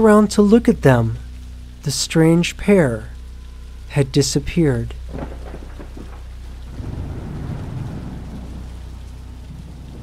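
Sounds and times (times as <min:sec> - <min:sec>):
steady rain: 0:00.0 - 0:10.0
thunder rolling: 0:05.0 - 0:10.0.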